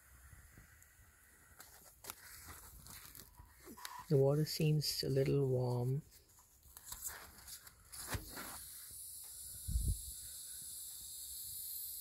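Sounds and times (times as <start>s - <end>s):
faint steady hiss: 0.0s - 12.0s
fingers rustling on pipe insulation: 1.6s - 8.7s.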